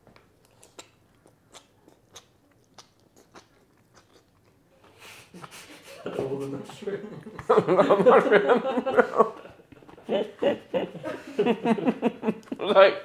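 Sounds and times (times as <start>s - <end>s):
person chewing crunchy food: 0.0s - 5.7s.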